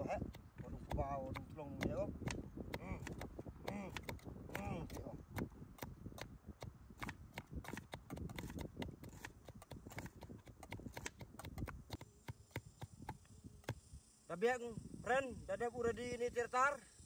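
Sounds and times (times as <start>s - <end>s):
light sharp knocks and taps: 3.9s - 13.8s.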